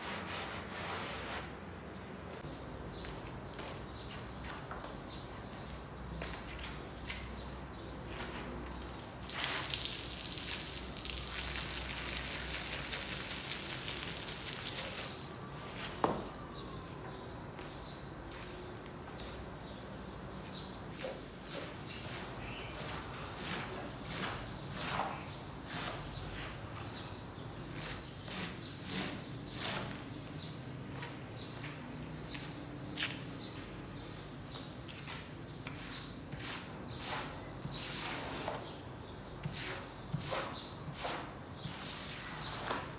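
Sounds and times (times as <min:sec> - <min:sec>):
squeegee scraping wet rug: 0:00.0 - 0:01.7, 0:08.1 - 0:16.0, 0:21.5 - 0:30.2, 0:35.6 - 0:38.8, 0:39.4 - 0:42.9
soapy water fizzing on rug: 0:08.7 - 0:15.4.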